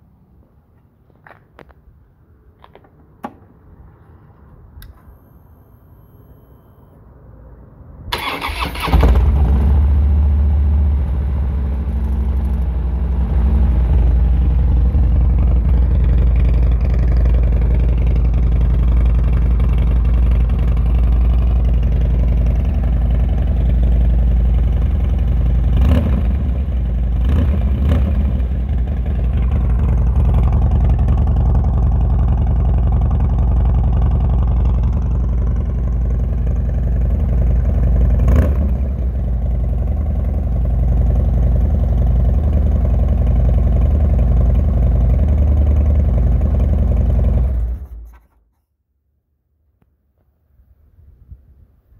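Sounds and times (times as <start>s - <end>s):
motorcycle idle rumble: 8.1s - 48.1s
motorcycle engine starting: 8.1s - 48.4s.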